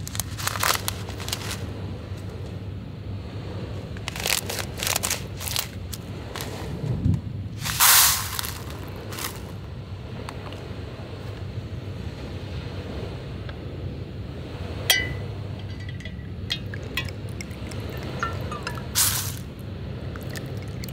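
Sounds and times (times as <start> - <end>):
packaging ripping: 0.0 - 1.6
plastic packaging crinkling: 0.0 - 1.6.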